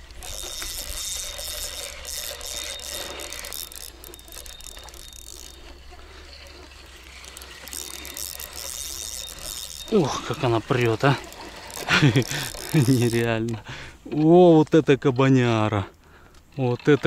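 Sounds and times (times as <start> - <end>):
fishing reel ratcheting and whirring: 0.0 - 13.6.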